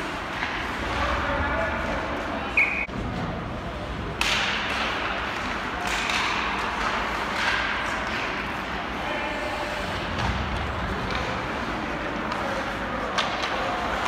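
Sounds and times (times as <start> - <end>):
arena background noise: 0.0 - 14.0
hockey stick cracking puck: 4.2 - 8.4.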